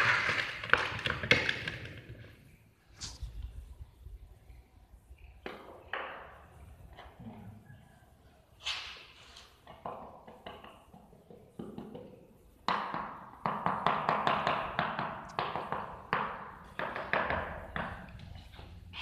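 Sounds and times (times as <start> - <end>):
tapping on floor tiles: 0.0 - 2.3, 9.6 - 18.6.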